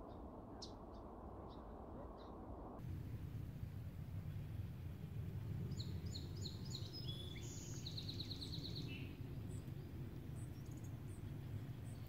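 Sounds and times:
songbird singing: 5.6 - 12.0.

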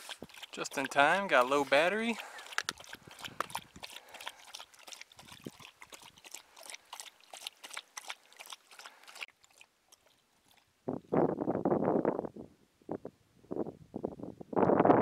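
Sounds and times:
dog lapping water: 0.0 - 10.7.

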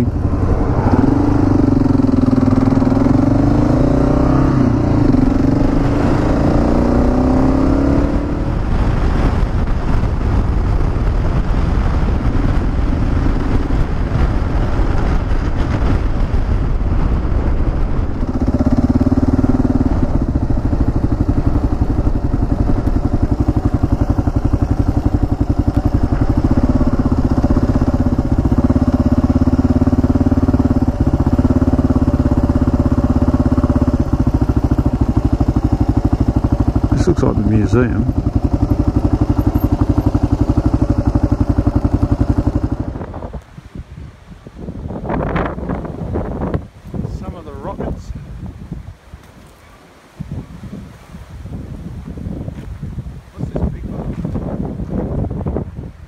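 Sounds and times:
motorcycle engine running: 0.0 - 43.4
wind and road noise: 0.0 - 56.0.

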